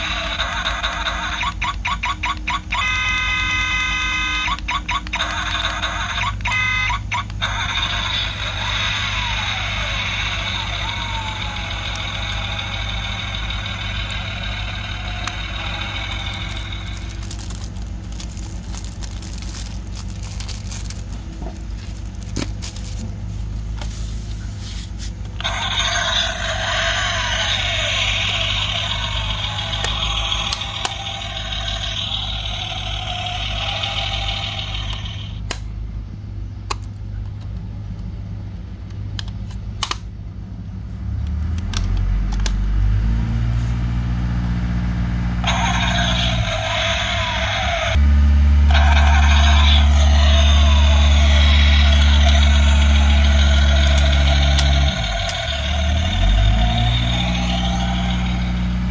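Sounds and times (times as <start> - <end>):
toy engine sound effect: 0.0 - 23.2, 25.2 - 35.5, 45.4 - 58.9
sharp clicks of toy doors: 0.5 - 2.8, 4.4 - 7.7
steady low hum: 3.1 - 58.9.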